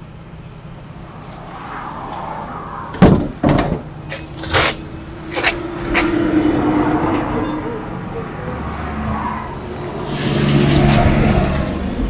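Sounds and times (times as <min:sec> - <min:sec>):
compartment doors knocking and slamming: 0:03.0 - 0:03.9.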